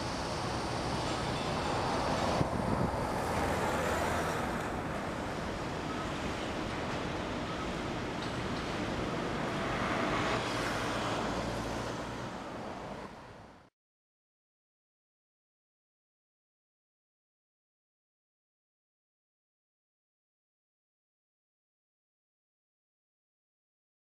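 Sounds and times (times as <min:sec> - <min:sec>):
road traffic: 0:00.0 - 0:13.7
vehicles passing: 0:00.0 - 0:13.7.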